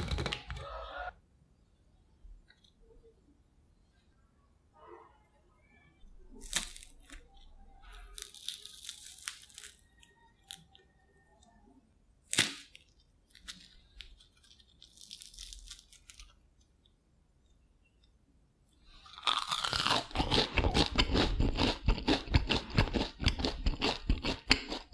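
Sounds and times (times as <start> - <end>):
crackling tears of fried food: 6.4 - 7.2, 8.0 - 10.6, 12.3 - 16.4, 19.0 - 24.9.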